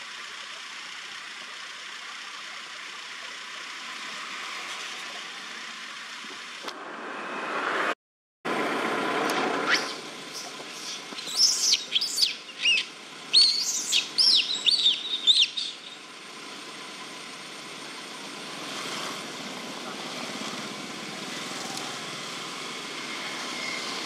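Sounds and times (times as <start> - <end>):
steady outdoor hiss: 0.0 - 7.9, 8.5 - 24.0
songbird chirping: 9.8 - 16.0.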